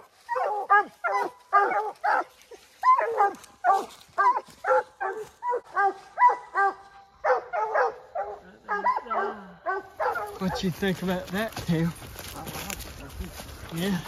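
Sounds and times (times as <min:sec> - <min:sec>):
dog barking: 0:00.3 - 0:10.8.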